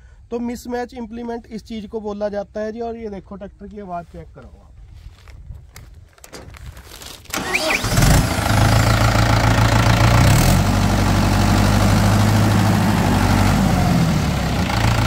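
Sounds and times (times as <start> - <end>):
tractor diesel engine running: 7.3 - 15.0.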